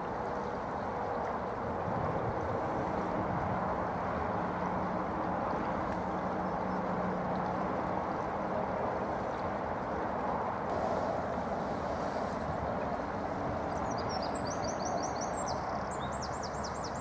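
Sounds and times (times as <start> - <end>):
river running over stones: 0.0 - 17.0.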